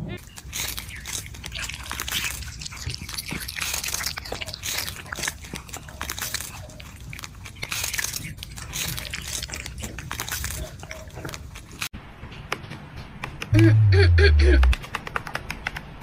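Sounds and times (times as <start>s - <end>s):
cats crunching food: 0.2s - 11.9s.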